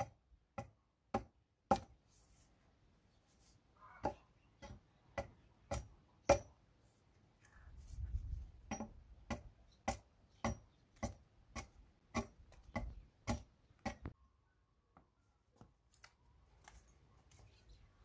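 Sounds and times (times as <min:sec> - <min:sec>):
hatchet chopping wood: 0:00.0 - 0:02.0, 0:04.0 - 0:06.6, 0:08.6 - 0:14.2.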